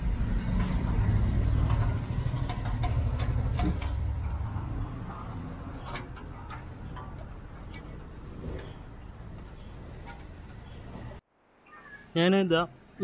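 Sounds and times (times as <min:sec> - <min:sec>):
low vehicle rumble: 0:00.0 - 0:11.2.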